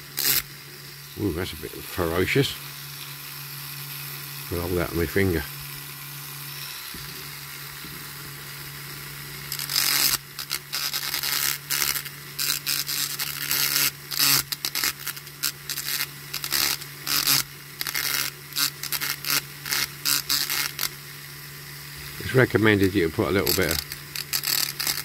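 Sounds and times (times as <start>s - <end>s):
rotary tool humming: 0.0s - 25.0s
bit grinding on steel axle: 22.1s - 25.0s.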